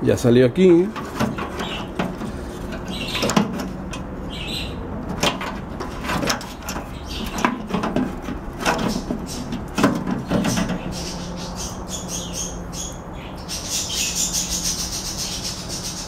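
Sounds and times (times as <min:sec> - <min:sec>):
bird chirps: 0:04.3 - 0:04.8, 0:10.4 - 0:16.0.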